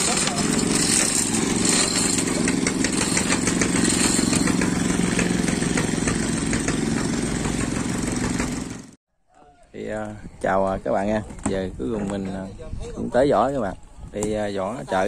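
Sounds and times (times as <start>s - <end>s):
boat engine running: 0.0s - 9.0s.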